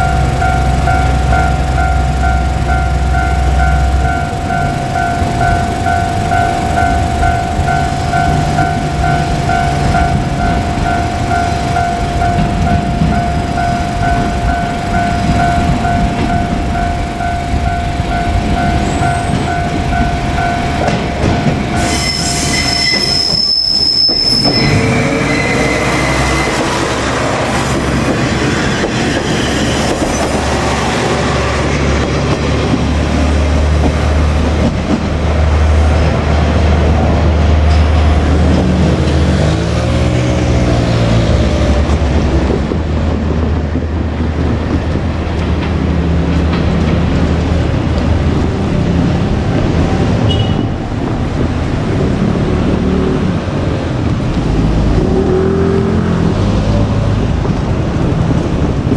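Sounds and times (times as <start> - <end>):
steady ringing tone: 0.0 - 26.6
diesel railcar engine droning: 0.0 - 58.9
wheels on rail: 0.0 - 58.9
high squeal: 21.7 - 27.7, 28.5 - 30.5.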